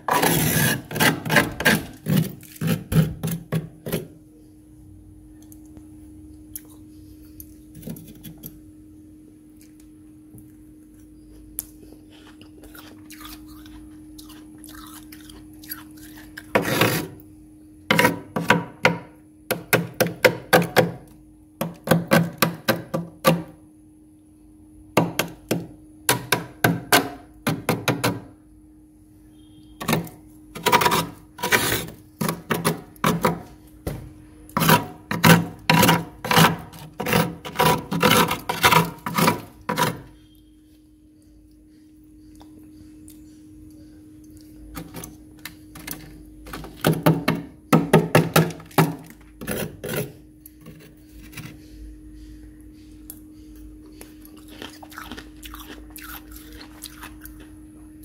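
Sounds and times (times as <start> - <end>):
steady low hum: 0.0 - 58.0
scraper rasping frost: 0.1 - 3.1, 30.6 - 32.7.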